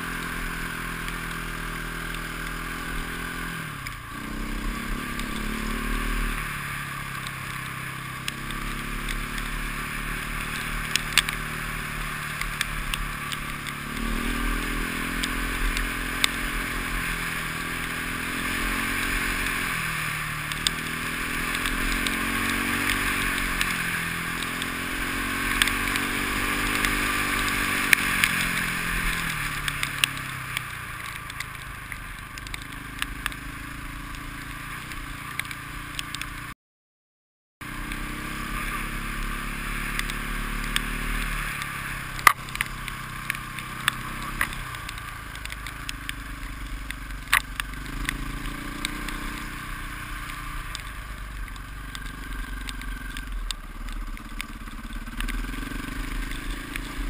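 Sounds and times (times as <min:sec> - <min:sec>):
motorcycle engine revving: 0:00.0 - 0:36.6, 0:37.6 - 0:57.0
sharp clicks: 0:40.0 - 0:49.6, 0:50.2 - 0:57.0.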